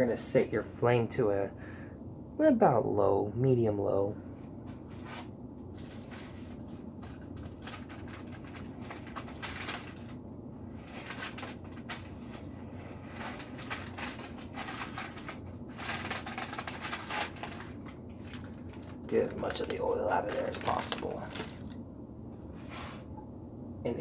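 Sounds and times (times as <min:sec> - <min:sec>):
steady low hum: 0:00.0 - 0:24.0
paper rustling: 0:04.7 - 0:21.8.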